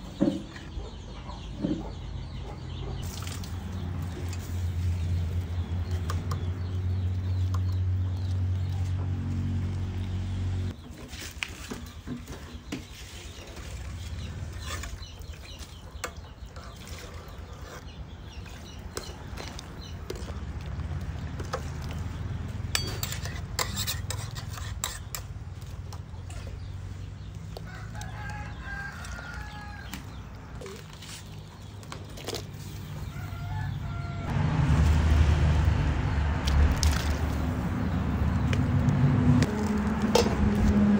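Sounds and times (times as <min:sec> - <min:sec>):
chickens clucking: 0:00.0 - 0:03.0.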